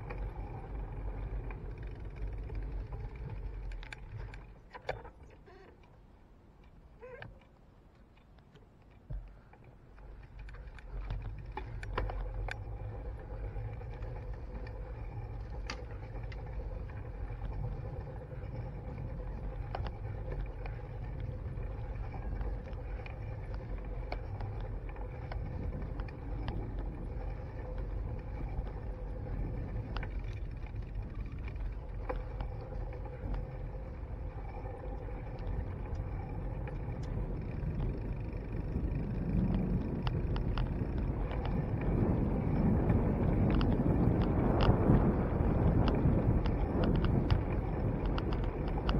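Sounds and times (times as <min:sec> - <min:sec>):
tyres rumbling on asphalt: 0:00.0 - 0:05.3, 0:09.0 - 0:48.9
small clicks and rattles: 0:00.0 - 0:48.9
wind on microphone: 0:11.0 - 0:48.9.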